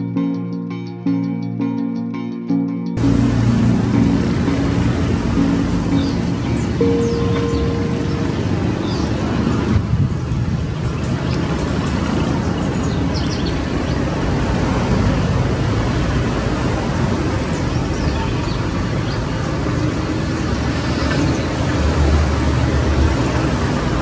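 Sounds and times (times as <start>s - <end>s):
low outdoor rumble: 3.0s - 11.0s.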